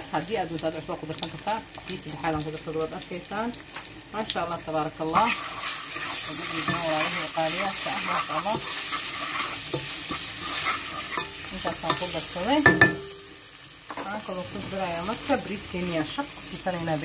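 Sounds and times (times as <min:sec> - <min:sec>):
onion sizzling in hot oil: 0:00.0 - 0:17.0
wooden spoon scraping a pot: 0:05.2 - 0:12.2.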